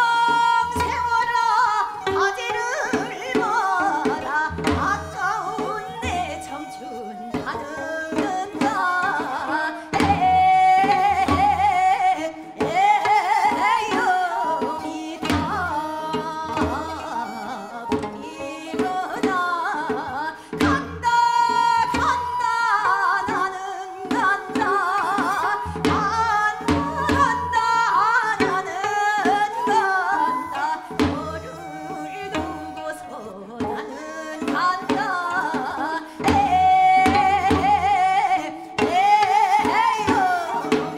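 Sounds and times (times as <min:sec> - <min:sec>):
folk singing with wide vibrato: 0:00.0 - 0:40.9
steady drum accompaniment: 0:36.2 - 0:38.1.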